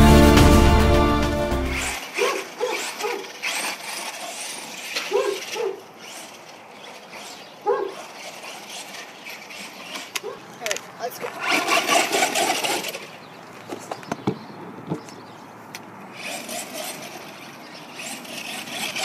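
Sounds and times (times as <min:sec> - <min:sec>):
dog barking: 0:02.2 - 0:03.2, 0:05.1 - 0:05.8, 0:07.6 - 0:08.0, 0:10.2 - 0:10.4.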